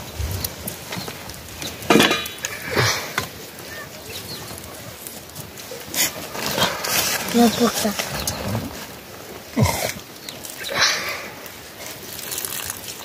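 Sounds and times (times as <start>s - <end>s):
steel cookware clinking: 1.9s - 2.5s.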